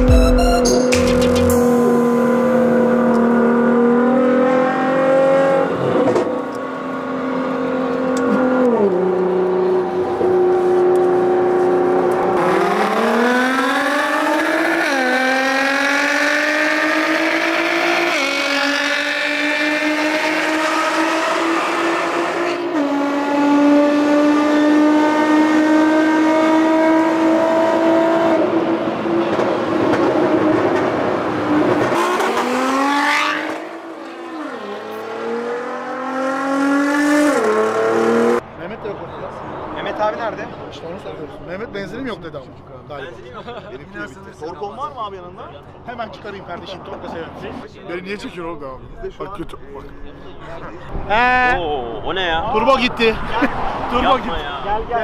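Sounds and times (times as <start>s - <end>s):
car engine accelerating: 0.0s - 38.4s.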